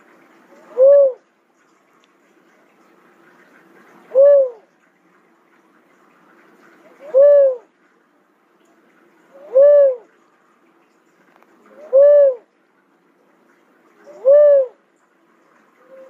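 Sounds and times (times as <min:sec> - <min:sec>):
dove cooing: 0:00.5 - 0:01.3, 0:04.1 - 0:04.7, 0:06.9 - 0:07.7, 0:09.3 - 0:10.2, 0:11.6 - 0:12.5, 0:14.0 - 0:14.8, 0:15.8 - 0:16.0.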